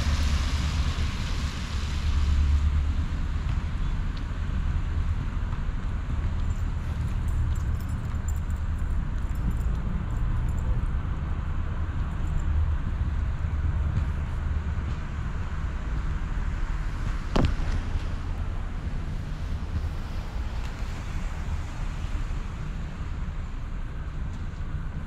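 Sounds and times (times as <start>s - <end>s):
street noise hiss from wet roads: 0.0s - 25.0s.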